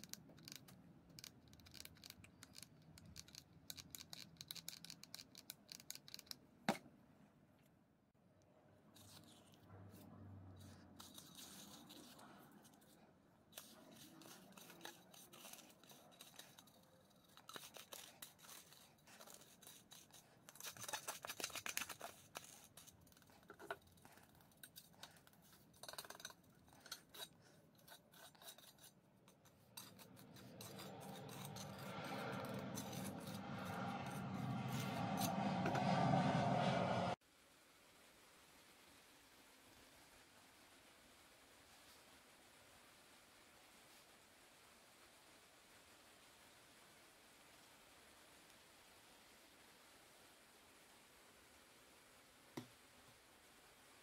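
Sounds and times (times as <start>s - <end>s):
trowel rubbing mortar smooth: 9.0s - 36.2s
trowel scraping mortar: 10.6s - 35.8s.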